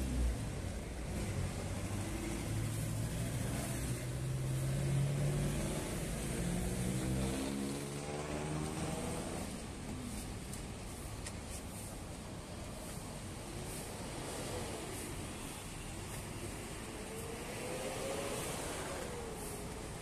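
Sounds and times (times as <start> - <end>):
vehicle engine accelerating: 1.0 - 9.8.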